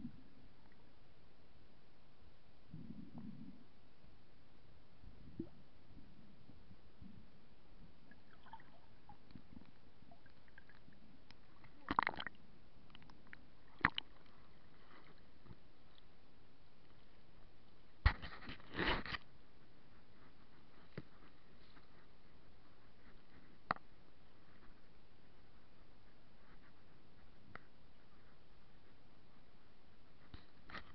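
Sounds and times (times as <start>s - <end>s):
water sloshing: 8.1s - 15.2s.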